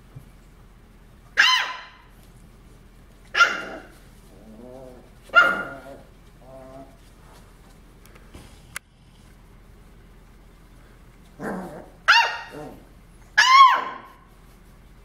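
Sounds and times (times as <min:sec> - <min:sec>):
puppy barking: 0:01.4 - 0:02.1, 0:03.3 - 0:04.0, 0:05.3 - 0:06.1, 0:11.5 - 0:14.3
soft low puppy sounds: 0:02.2 - 0:08.2.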